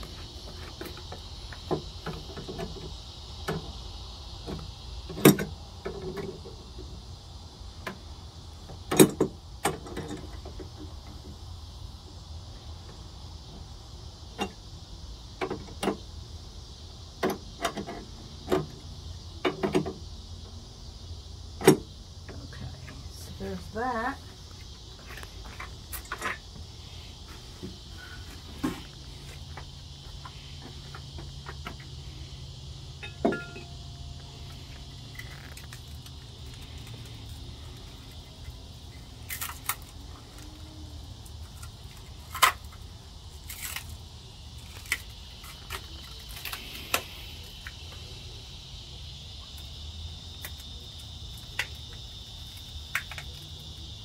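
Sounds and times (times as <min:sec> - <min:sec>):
crickets chirping: 0:00.0 - 0:54.0
knocks and clatters of handled part: 0:33.0 - 0:33.7.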